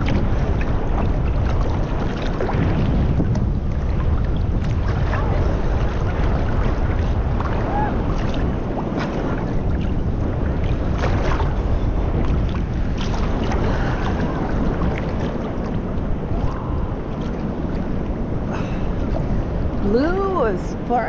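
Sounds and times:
water sloshing and lapping: 0.0s - 21.0s
wind on microphone: 0.0s - 21.0s.

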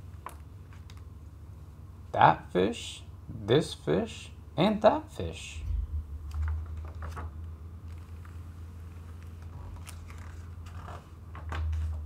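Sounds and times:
low hum: 5.4s - 9.2s
book pages turning: 6.2s - 12.0s.

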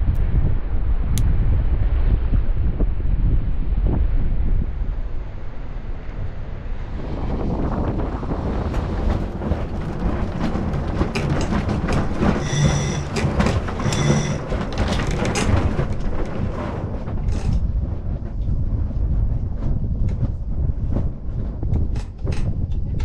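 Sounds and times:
wind buffeting microphone: 0.0s - 23.0s
boat gear clicking and rattling: 8.5s - 17.8s, 21.7s - 23.0s
short high beeps: 12.4s - 13.1s, 13.9s - 14.4s.

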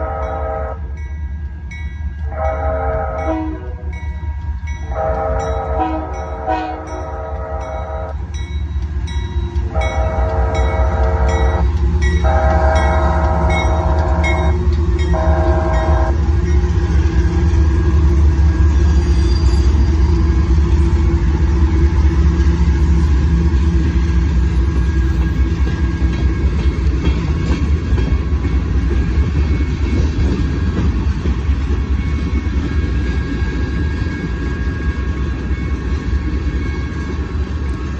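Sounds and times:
train horn blasts: 0.0s - 1.0s, 2.2s - 4.0s, 4.8s - 8.3s, 9.7s - 16.4s
crossing bell ringing: 0.0s - 21.4s, 24.5s - 30.9s, 31.8s - 37.6s
freight train rumbling past: 0.0s - 37.9s.

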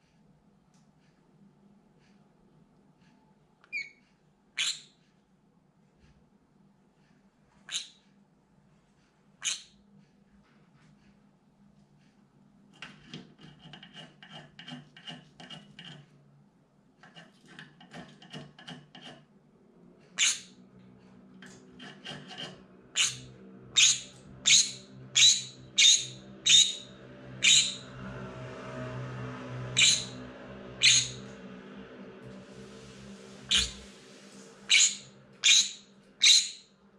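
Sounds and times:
parrot shrill screams: 23.0s - 27.8s, 29.8s - 30.2s, 30.8s - 31.2s, 33.5s - 33.8s, 34.7s - 36.7s
soft scratchy strokes: 27.8s - 35.4s.

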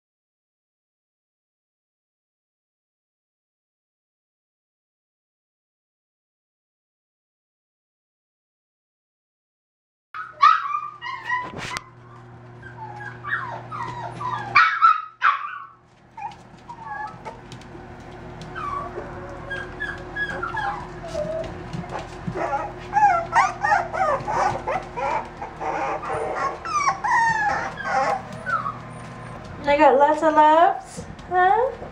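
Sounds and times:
puppies whining: 10.2s - 30.2s.

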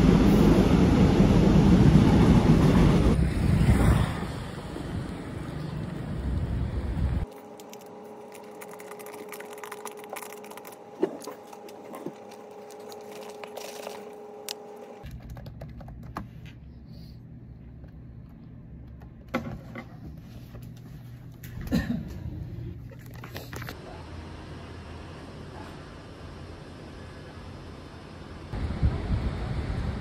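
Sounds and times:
steady room hum: 7.2s - 28.8s
plastic bottle rattling: 7.3s - 14.1s
desk items being handled: 7.3s - 16.6s
wind on microphone: 28.6s - 30.0s.

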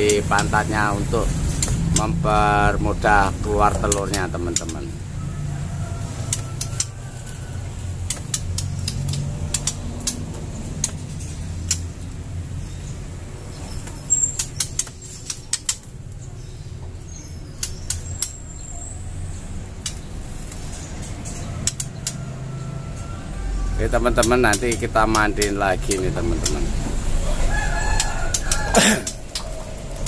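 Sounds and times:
sharp taps and clicks on cage wire: 0.0s - 12.9s, 13.6s - 16.4s, 17.1s - 18.8s, 19.6s - 23.2s, 23.8s - 30.0s
high bird chirps: 8.1s - 22.7s.

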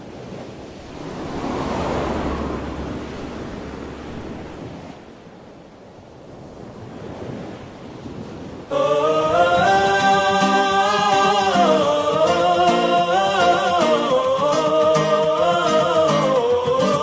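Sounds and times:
wind buffeting microphone: 0.0s - 12.8s.

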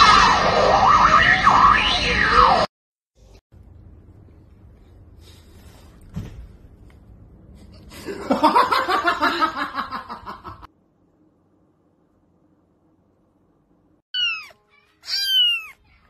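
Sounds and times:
human laughter: 7.9s - 10.7s.

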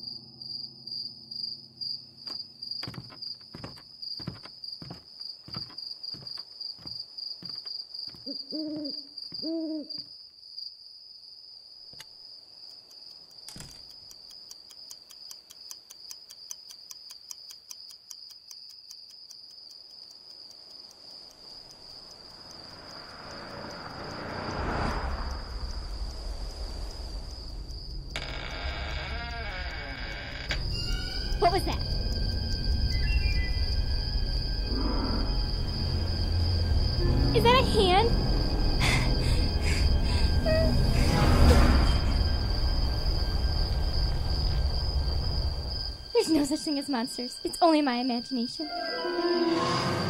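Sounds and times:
crickets chirping: 0.0s - 50.0s
owl hooting: 8.2s - 10.0s
alarm clock ticking: 13.8s - 24.1s
low noisy swell: 31.2s - 46.2s.

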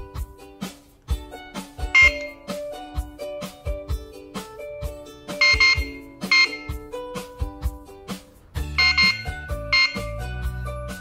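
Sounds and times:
background music with steady beat: 0.0s - 11.0s
high-pitched siren beeps: 2.0s - 2.4s, 5.4s - 6.8s, 8.8s - 10.2s.

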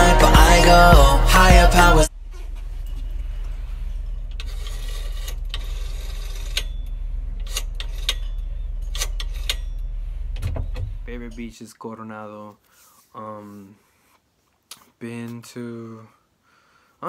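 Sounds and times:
steady low hum: 0.0s - 11.5s.

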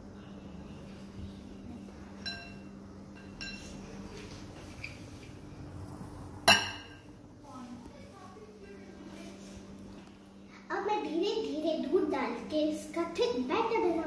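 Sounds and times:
kitchenware clinking on glass bowls: 2.2s - 3.8s.

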